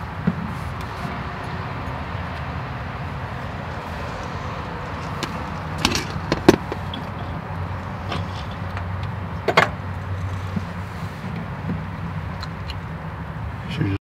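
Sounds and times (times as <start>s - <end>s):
tools clinking against metal: 5.0s - 7.3s.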